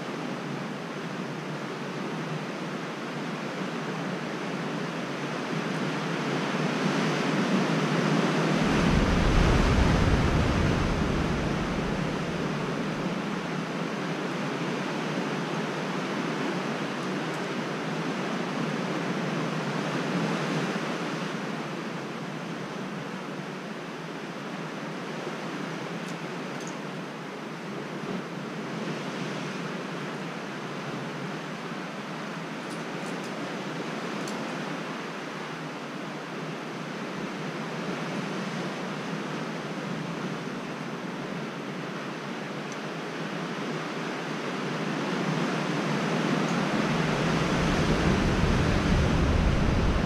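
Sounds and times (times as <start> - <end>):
ocean surf roaring: 7.0 - 14.8, 43.3 - 50.0
deep rumble: 8.2 - 13.5, 46.6 - 50.0.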